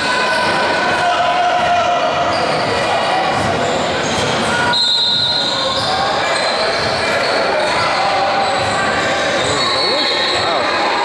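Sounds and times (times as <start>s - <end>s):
crowd chatter: 0.0s - 11.0s
sneaker squeaks: 2.2s - 10.9s.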